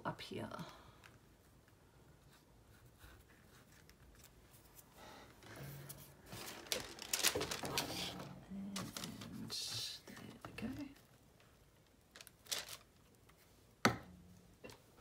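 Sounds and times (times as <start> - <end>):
paper rustling and crinkling: 3.0 - 11.1, 11.8 - 13.5.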